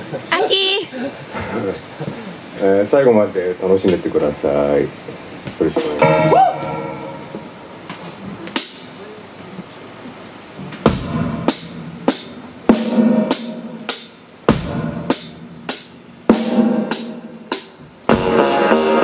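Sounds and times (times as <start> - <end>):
drum kit playing a beat: 5.6 - 9.7, 10.4 - 19.0
band playing: 5.8 - 9.0, 10.9 - 19.0.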